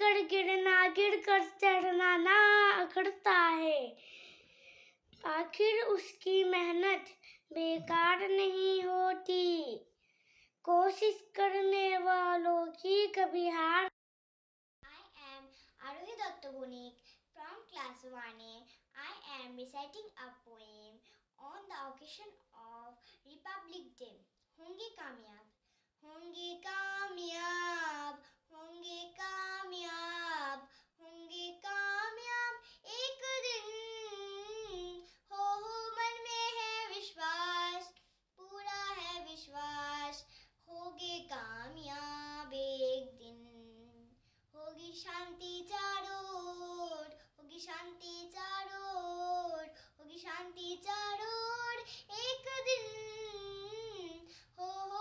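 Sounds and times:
child singing: 0.0 - 4.0, 5.2 - 9.8, 10.7 - 13.9, 26.0 - 55.0.

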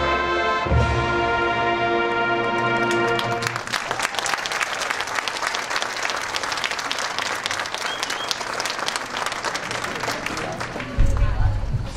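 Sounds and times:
brass band chord: 0.0 - 3.6
crowd applauding: 2.4 - 11.4.

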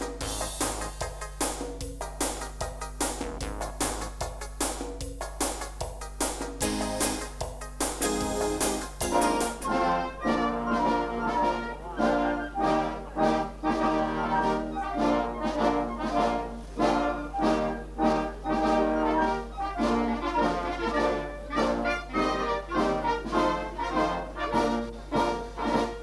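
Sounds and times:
wind band playing: 8.3 - 26.0.

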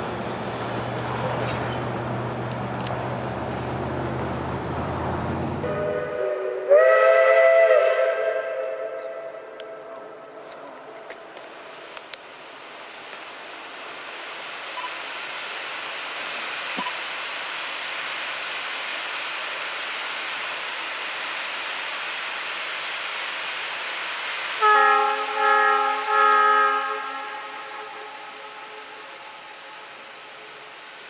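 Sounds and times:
steam train rushing noise: 0.0 - 31.0
chime steam whistle: 5.6 - 9.5, 24.6 - 30.5.

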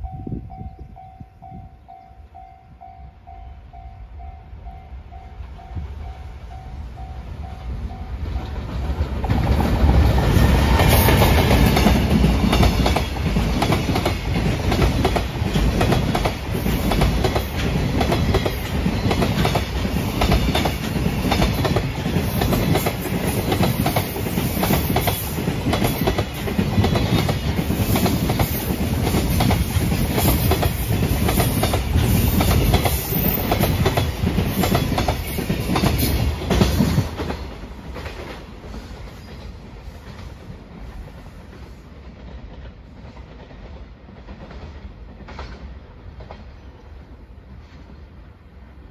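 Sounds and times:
electric locomotive passing: 0.0 - 48.9
train wheels clacking over rail joints: 8.3 - 46.7.

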